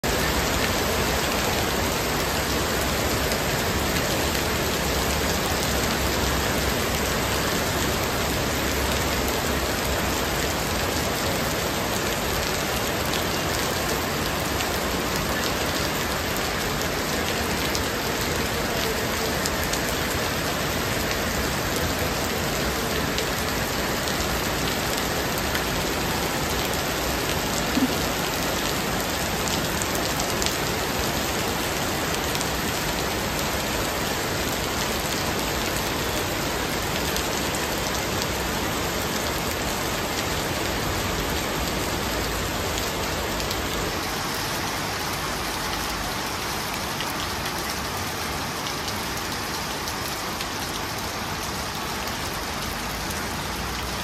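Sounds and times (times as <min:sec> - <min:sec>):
heavy rain on a flooded street: 0:00.0 - 0:54.0.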